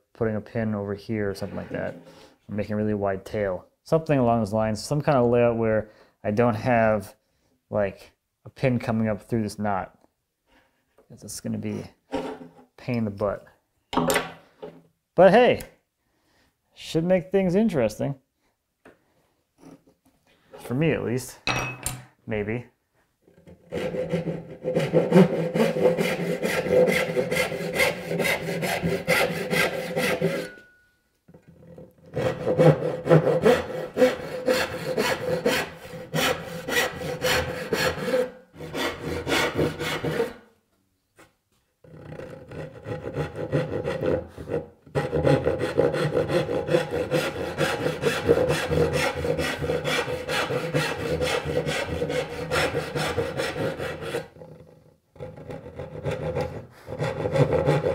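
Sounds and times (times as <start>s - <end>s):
hand saw cutting wood: 23.4s - 30.6s, 31.5s - 40.4s, 41.8s - 57.9s.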